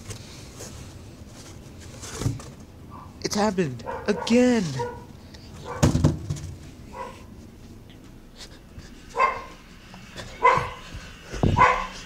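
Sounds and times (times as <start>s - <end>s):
dog barking: 2.9s - 3.2s, 3.8s - 6.0s, 6.9s - 7.3s, 9.2s - 9.6s, 10.4s - 10.8s, 11.5s - 12.0s.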